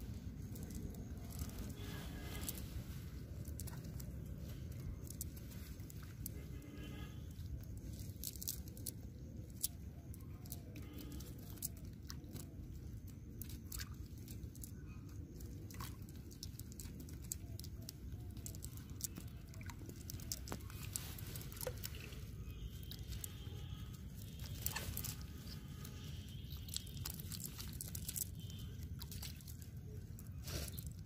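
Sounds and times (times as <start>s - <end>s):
steady low rumble: 0.0s - 6.5s
net clicks and crackles: 0.2s - 6.6s, 7.4s - 31.0s
fish flapping: 15.5s - 31.0s.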